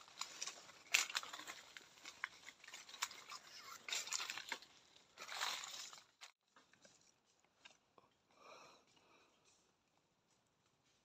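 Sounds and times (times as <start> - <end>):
dry rustling and crackling: 0.0 - 7.8.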